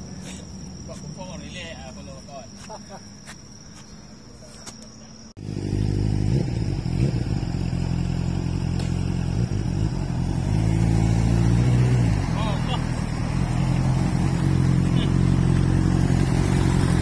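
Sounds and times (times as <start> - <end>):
high insect whine: 0.0 - 17.0
vehicle engine running: 5.4 - 17.0.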